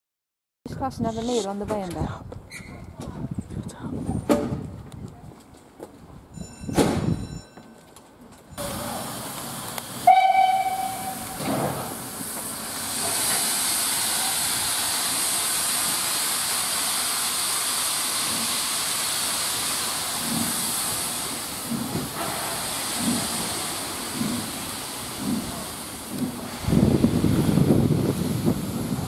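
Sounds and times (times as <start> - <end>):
steam locomotive hissing: 8.6 - 29.0
train whistle: 10.0 - 11.4.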